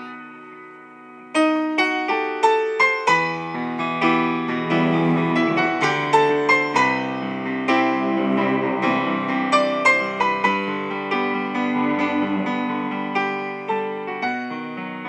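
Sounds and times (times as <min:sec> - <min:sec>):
piano notes and chords: 0:00.0 - 0:15.0.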